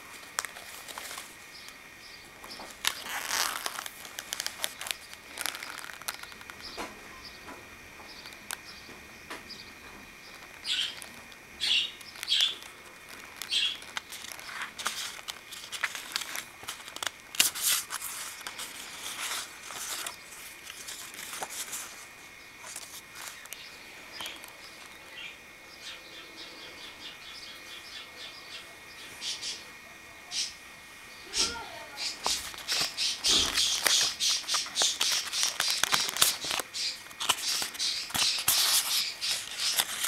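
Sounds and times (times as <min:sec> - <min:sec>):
card pages rustling and flapping: 0:00.0 - 0:01.8, 0:02.4 - 0:06.9, 0:10.3 - 0:23.6, 0:32.0 - 0:40.0.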